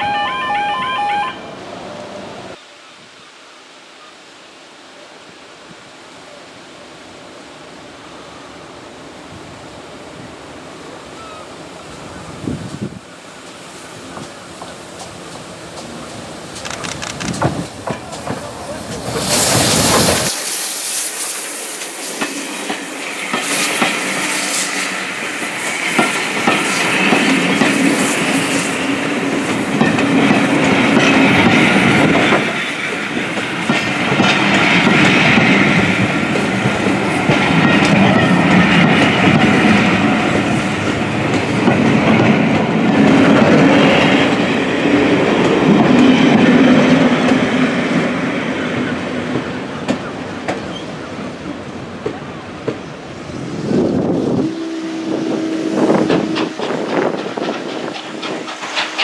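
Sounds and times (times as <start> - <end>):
train wheels clattering over rail joints: 13.5 - 20.4, 21.7 - 44.6, 56.0 - 59.0.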